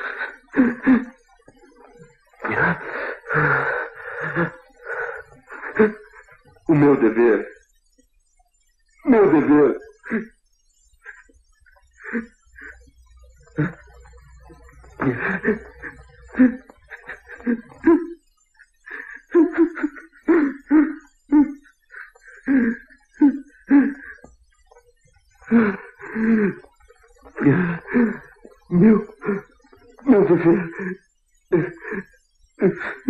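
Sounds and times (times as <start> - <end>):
man sobbing and gasping: 2.4 - 7.6, 9.1 - 10.3, 13.6 - 18.2, 18.8 - 24.3, 25.4 - 33.0.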